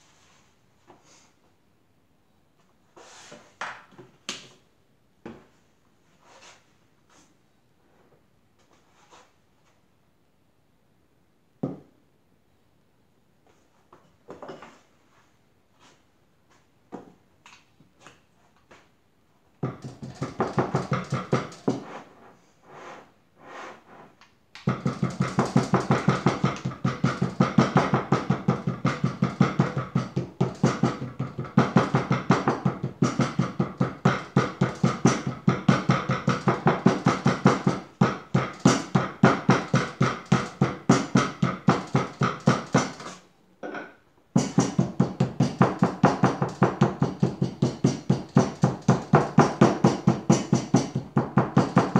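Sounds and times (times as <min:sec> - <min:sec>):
rubber mallet pounding clay: 0:19.6 - 0:21.9, 0:24.6 - 0:43.2, 0:44.3 - 0:51.9.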